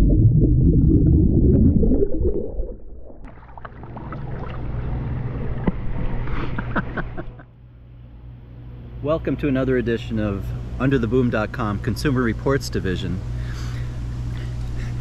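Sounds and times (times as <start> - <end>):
underwater bubbling and churning: 0.0 - 6.0
water splashing: 0.0 - 6.0.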